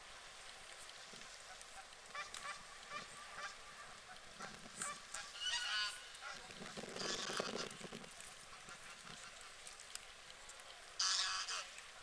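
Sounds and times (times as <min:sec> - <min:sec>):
geese honking: 0:01.4 - 0:06.4, 0:11.0 - 0:11.8.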